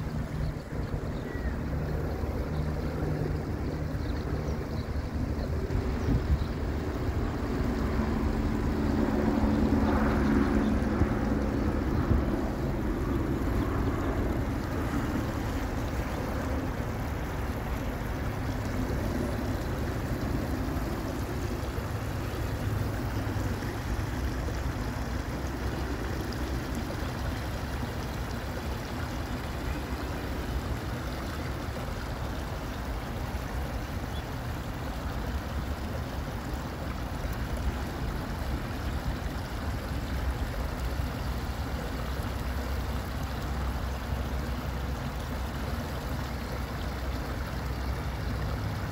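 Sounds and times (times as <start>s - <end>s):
stream trickling over rocks: 0.0s - 48.9s.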